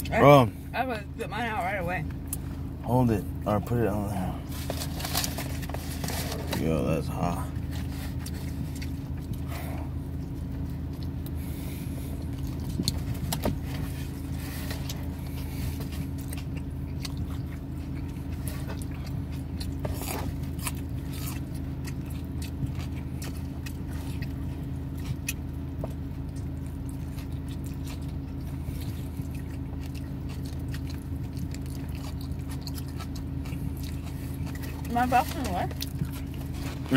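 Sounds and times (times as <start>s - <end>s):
low hum inside car: 0.0s - 36.9s
chewing and biting pizza: 2.0s - 36.9s.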